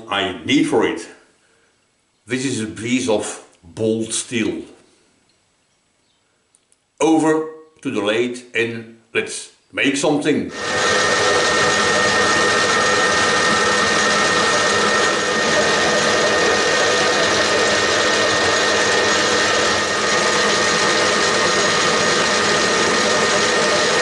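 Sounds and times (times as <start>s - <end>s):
metal lathe drone and whine: 10.5s - 24.0s.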